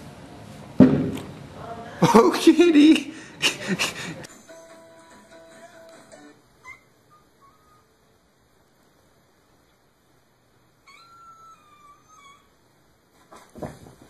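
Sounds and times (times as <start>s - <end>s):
loud thump: 0.8s - 1.2s.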